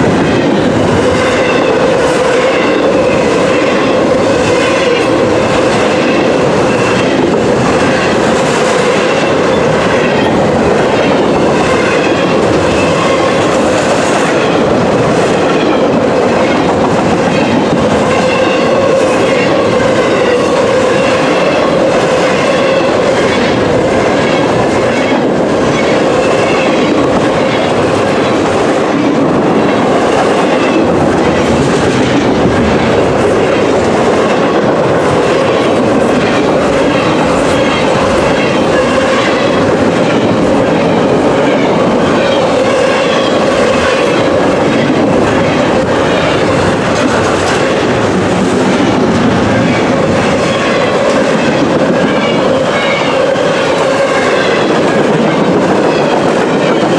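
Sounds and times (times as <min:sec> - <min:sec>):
freight train passing: 0:00.0 - 0:56.9.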